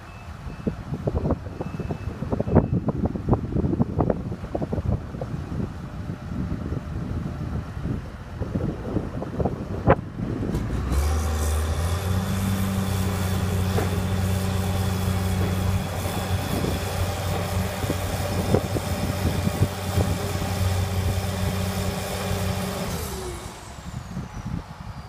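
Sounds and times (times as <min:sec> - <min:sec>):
diesel engine revving: 0:10.0 - 0:25.0.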